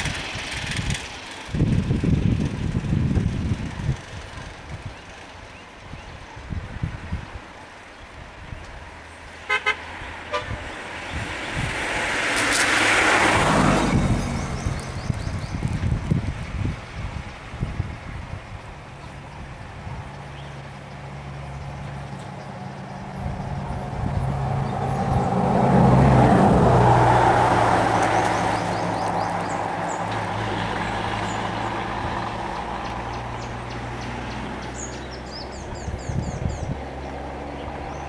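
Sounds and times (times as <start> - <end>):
diesel bus engine revving: 0.0 - 4.6, 11.0 - 16.2, 20.7 - 36.0.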